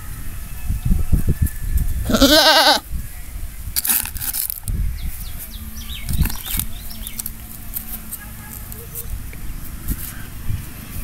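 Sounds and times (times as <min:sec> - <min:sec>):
young goat bleating: 0:02.0 - 0:02.8.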